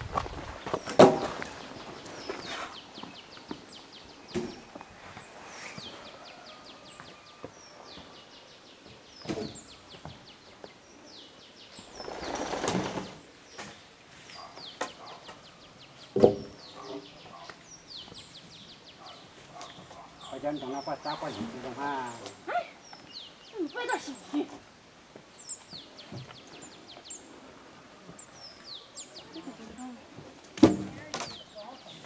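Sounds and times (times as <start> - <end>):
small birds chirping: 0.2 - 32.0
rustling: 11.7 - 14.6.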